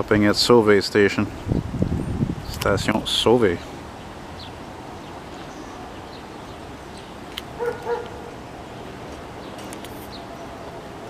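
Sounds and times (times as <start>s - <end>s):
dog barking: 7.6s - 8.4s.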